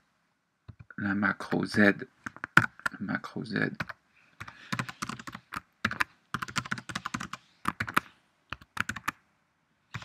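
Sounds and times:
typing on computer keyboard: 0:04.7 - 0:09.2.

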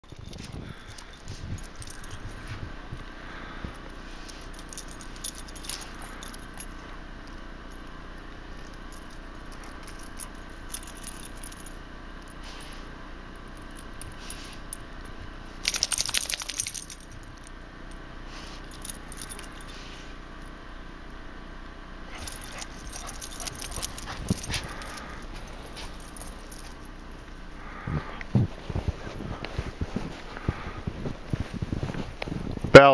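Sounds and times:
dog tags jingling: 0:00.0 - 0:02.5, 0:04.3 - 0:06.8, 0:08.6 - 0:11.8, 0:15.0 - 0:17.5, 0:18.7 - 0:19.8, 0:22.1 - 0:27.0.

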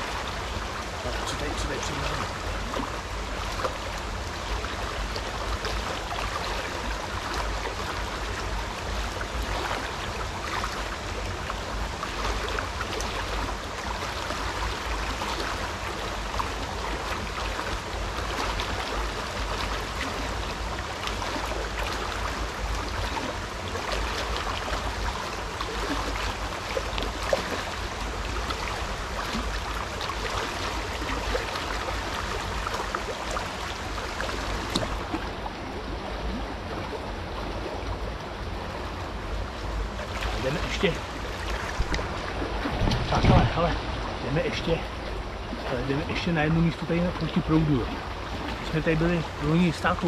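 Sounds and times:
river water flowing: 0:00.0 - 0:50.0
low rumble: 0:41.0 - 0:45.6.

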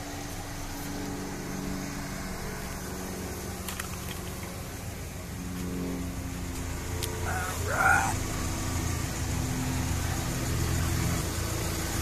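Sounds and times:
pickup engine idling: 0:00.0 - 0:12.0.

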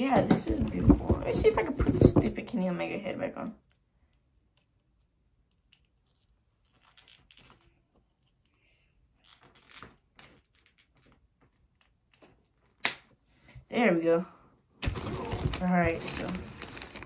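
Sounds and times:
rustling: 0:14.8 - 0:17.0.

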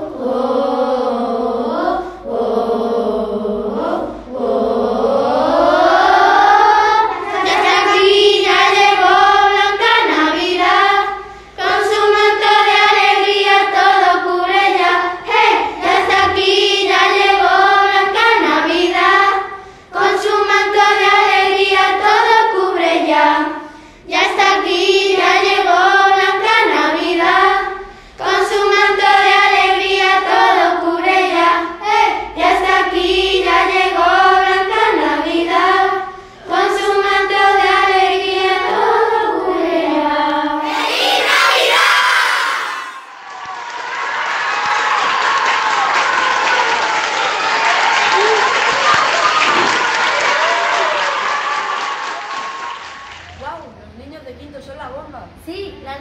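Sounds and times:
children singing a carol: 0:00.0 - 0:43.1.

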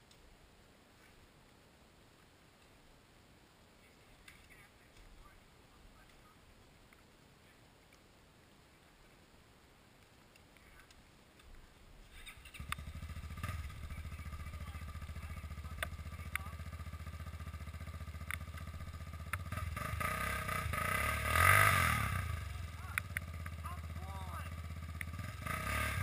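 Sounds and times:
sharp ticks: 0:12.3 - 0:20.8, 0:21.4 - 0:23.9, 0:24.5 - 0:25.8
quad engine starting and idling: 0:12.3 - 0:26.0.

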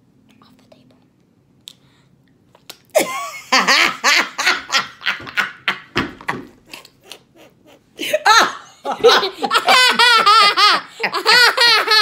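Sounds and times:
people laughing hard: 0:03.0 - 0:12.0.

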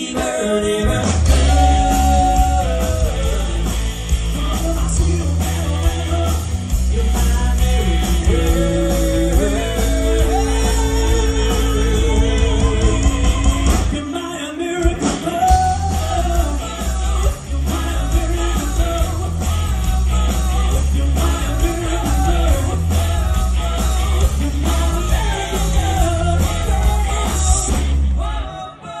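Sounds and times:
bass guitar: 0:00.0 - 0:14.1, 0:14.8 - 0:28.6
electric and acoustic guitars: 0:00.0 - 0:28.9
drums: 0:00.0 - 0:29.0
man singing: 0:00.0 - 0:29.0.

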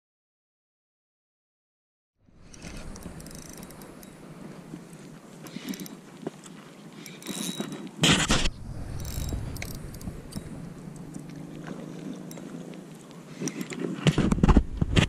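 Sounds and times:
fishing line rushing out: 0:02.4 - 0:06.0, 0:07.0 - 0:13.7
reel gears whirring: 0:02.4 - 0:06.2, 0:06.9 - 0:12.6
handling clicks and knocks: 0:02.4 - 0:14.4.

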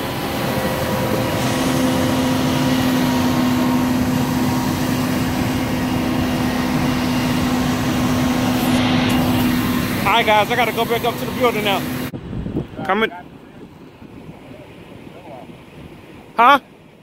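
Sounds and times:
diesel engine drone: 0:00.0 - 0:17.0
hydraulics hum: 0:00.0 - 0:17.0.

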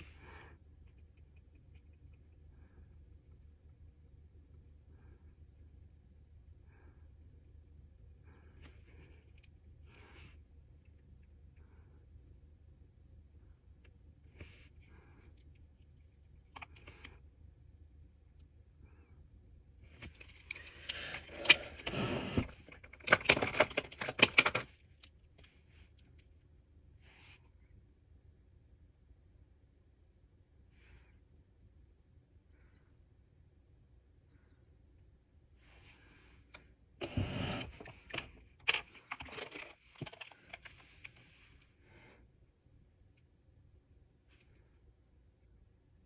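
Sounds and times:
plastic items clicking and rattling: 0:20.0 - 0:25.1, 0:37.6 - 0:41.1.

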